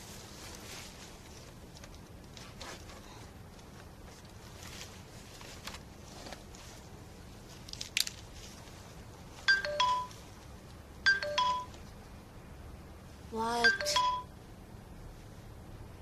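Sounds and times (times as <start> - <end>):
electronic notification chimes: 9.5 - 10.1, 11.1 - 11.7, 13.6 - 14.3.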